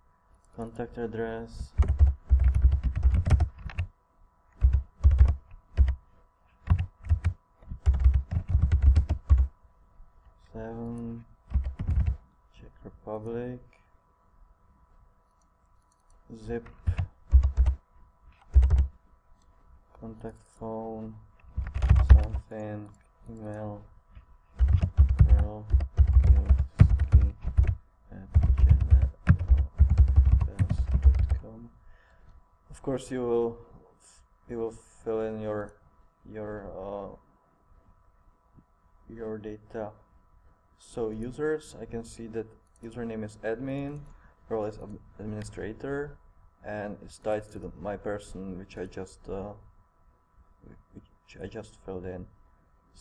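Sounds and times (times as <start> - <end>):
typing on computer keyboard: 1.8 - 3.9, 4.6 - 6.0, 6.6 - 9.5, 11.5 - 12.2, 16.6 - 17.8, 18.4 - 18.9, 21.5 - 22.6, 24.6 - 31.4.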